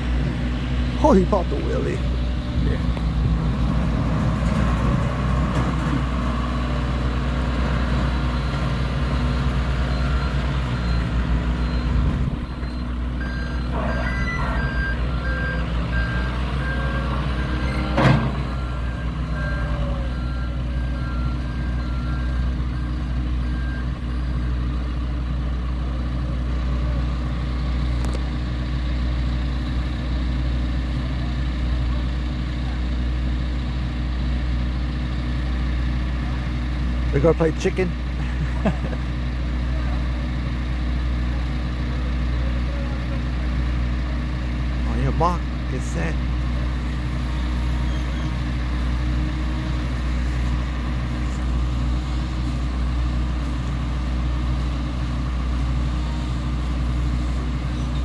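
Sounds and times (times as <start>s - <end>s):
diesel machinery running: 0.0s - 58.0s
reversing alarm beeping: 7.8s - 24.7s.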